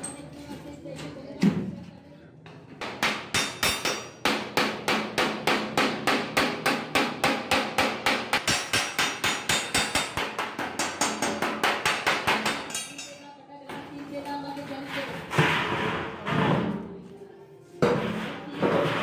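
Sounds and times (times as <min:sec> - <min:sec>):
hammer beating sheet metal: 0:02.8 - 0:13.1.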